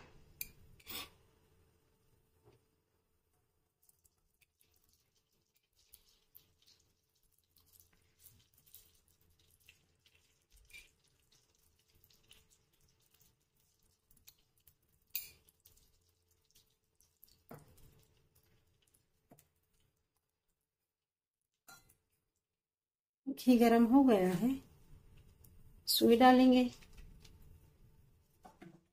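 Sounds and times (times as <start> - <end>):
ghee crackling in a frying pan: 3.5 - 20.6, 24.2 - 28.5.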